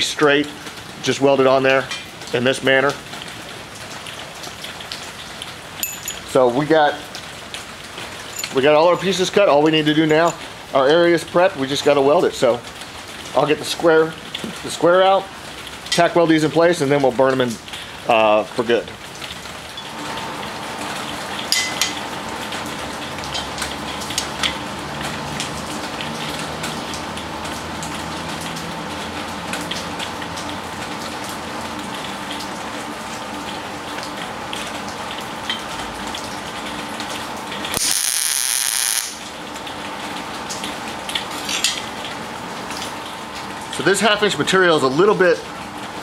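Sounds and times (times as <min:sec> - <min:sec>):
loud high hiss: 0:37.8 - 0:39.2.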